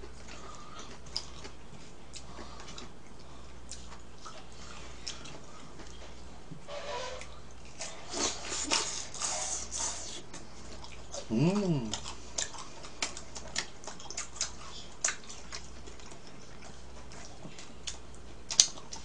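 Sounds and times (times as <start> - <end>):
chewing: 0.0 - 6.3, 7.2 - 19.0.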